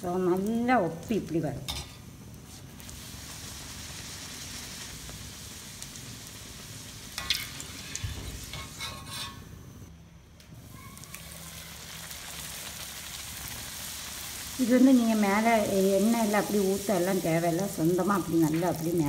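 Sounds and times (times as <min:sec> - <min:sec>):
hot oil sizzling: 0:00.0 - 0:09.9, 0:10.6 - 0:19.0
metal spoon scraping a pan: 0:07.2 - 0:09.5.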